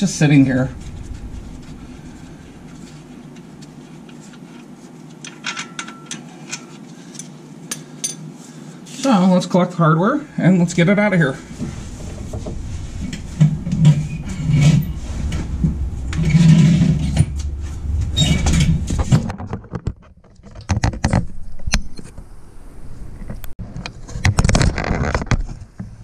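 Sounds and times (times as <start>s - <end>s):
metallic clinks and knocks: 5.3s - 6.7s.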